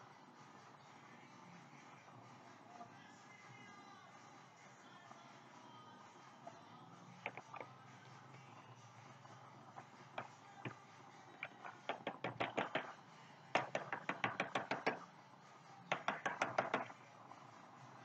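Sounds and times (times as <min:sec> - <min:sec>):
rapid tapping on plastic tub: 0:07.2 - 0:07.7, 0:09.7 - 0:13.0, 0:13.6 - 0:15.0, 0:15.9 - 0:17.0.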